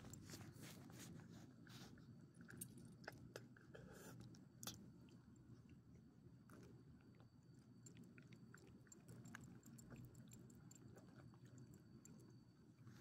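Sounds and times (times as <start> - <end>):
small dog chewing and licking: 6.5 - 12.3.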